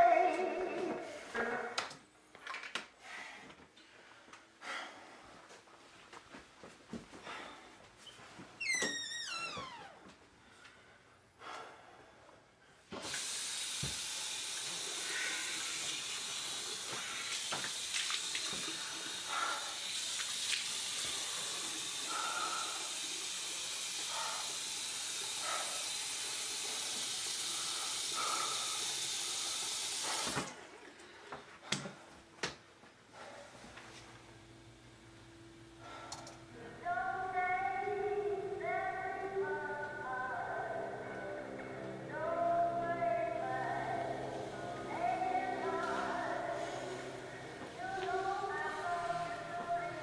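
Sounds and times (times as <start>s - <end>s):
water splashing on face: 16.9s - 19.1s.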